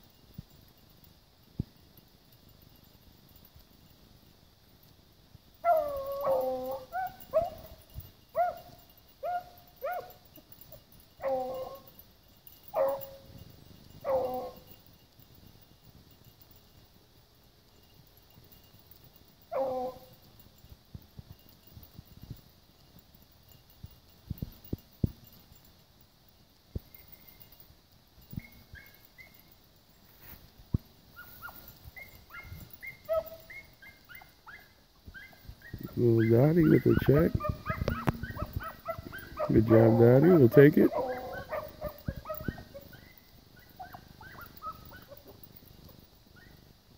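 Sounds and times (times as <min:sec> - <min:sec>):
hounds baying: 0:05.6 - 0:15.6, 0:17.7 - 0:20.7, 0:28.4 - 0:29.6, 0:31.1 - 0:46.7.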